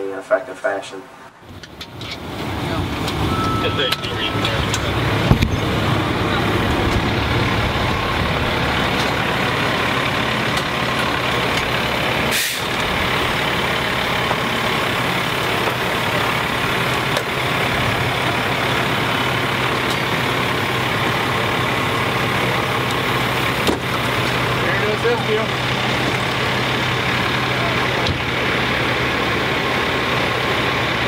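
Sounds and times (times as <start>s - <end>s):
truck engine droning: 1.4s - 31.0s
brief hiss: 12.3s - 12.6s.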